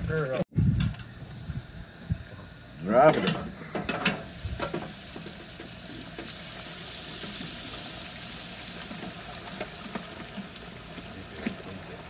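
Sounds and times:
fish sizzling in hot oil: 2.6 - 12.0.

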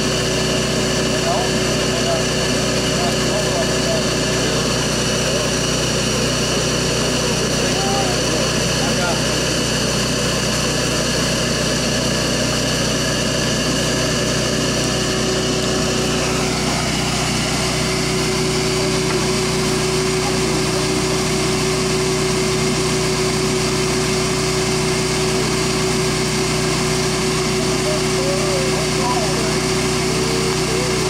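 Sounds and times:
vacuum motor high drone: 0.0 - 31.0.

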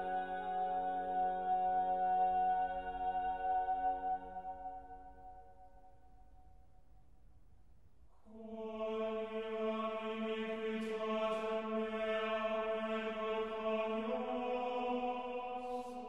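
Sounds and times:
chant-like ambient drone music: 0.0 - 5.9, 8.3 - 16.0.

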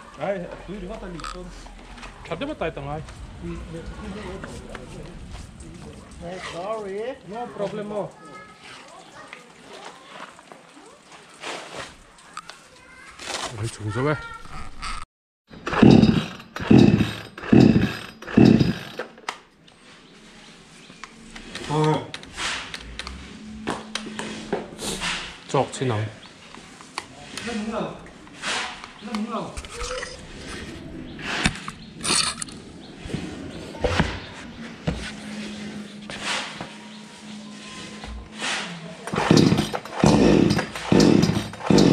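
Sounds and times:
short rustling scrapes: 4.0 - 6.9, 11.2 - 12.1, 28.4 - 28.9, 33.0 - 38.8
chainsaw engine turning over: 15.5 - 19.2, 39.1 - 41.9
chainsaw starter cord pulls: 15.6 - 19.2, 39.1 - 41.9
chainsaw knocking on rubber mat: 39.2 - 41.9.

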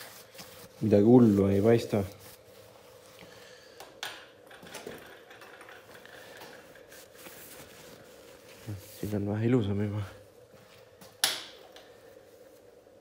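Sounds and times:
paper towel rubbing metal: 0.0 - 3.0.

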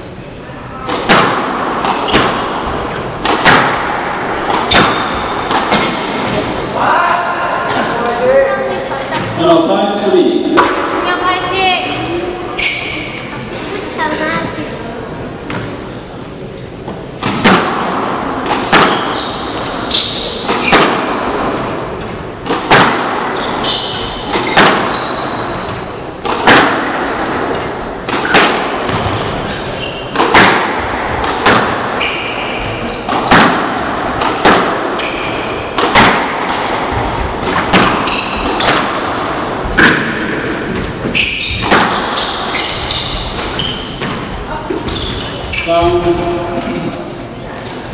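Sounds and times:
squash ball cracking off rackets: 0.8 - 6.5, 17.2 - 29.3, 30.0 - 45.0
shoes squeaking on hardwood floor: 3.6 - 6.5, 12.5 - 13.4, 18.6 - 22.0, 23.3 - 26.1, 26.8 - 27.9, 28.9 - 30.3, 31.6 - 33.3, 34.9 - 35.7, 36.9 - 38.8, 39.6 - 46.3.

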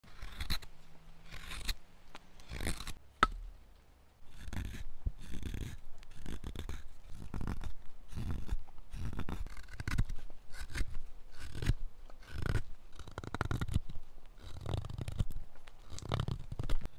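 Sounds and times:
knife scraping wood: 0.0 - 3.5, 4.2 - 16.9.

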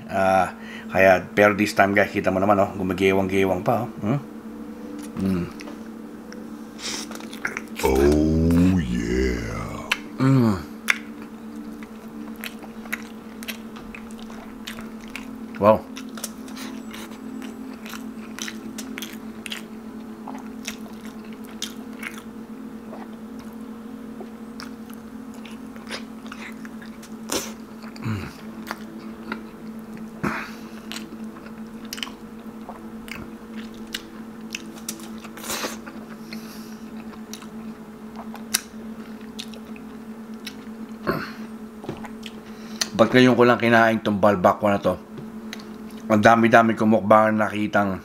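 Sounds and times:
steady low hum: 0.0 - 48.0
finger-sucking: 7.8 - 10.1
close chewing: 10.9 - 22.3, 24.2 - 30.1, 30.8 - 40.9
lip smacks and mouth clicks: 16.0 - 19.7, 39.4 - 39.8.

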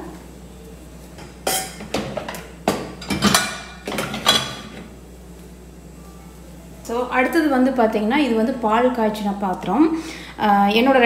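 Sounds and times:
dishes clattering in dishwasher rack: 1.5 - 4.8.

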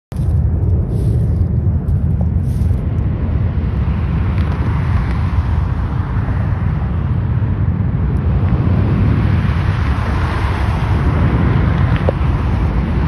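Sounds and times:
wind buffeting microphone: 0.1 - 13.0
road traffic noise: 0.9 - 13.0
car passing: 3.6 - 13.0.

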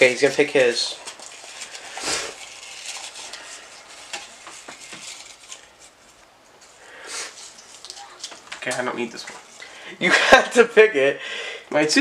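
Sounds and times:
hand rummaging through paper slips: 0.0 - 6.2
short breathy burst of noise: 6.8 - 7.5.

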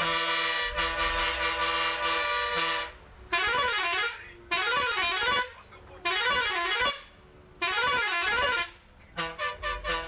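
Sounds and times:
warbling musical horn: 0.0 - 7.0
bus air horn chord: 0.0 - 10.0.

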